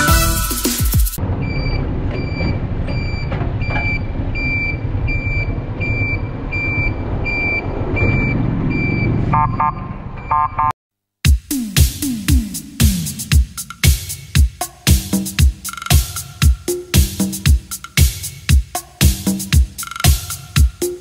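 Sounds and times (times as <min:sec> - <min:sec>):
reversing alarm beeping: 0:01.4 - 0:10.7.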